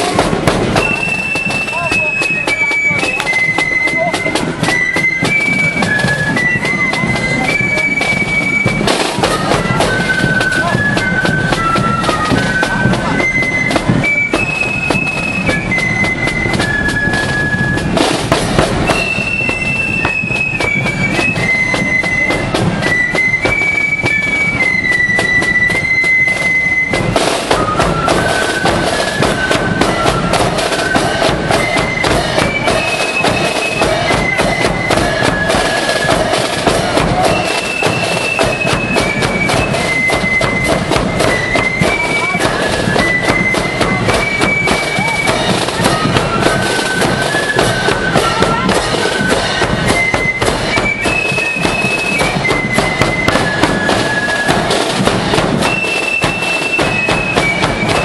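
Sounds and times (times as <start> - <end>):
bass drum: 0.0 - 1.0, 14.8 - 19.2, 27.0 - 55.7
flutes playing shrill melody: 0.0 - 58.0
snare drum beats: 0.0 - 58.0.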